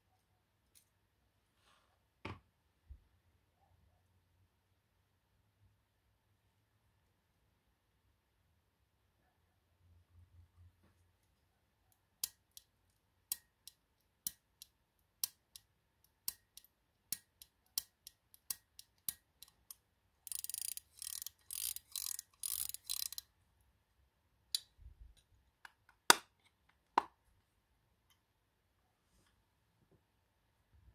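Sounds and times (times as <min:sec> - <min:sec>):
pocket watch pusher clicking: 0:16.3 - 0:23.2.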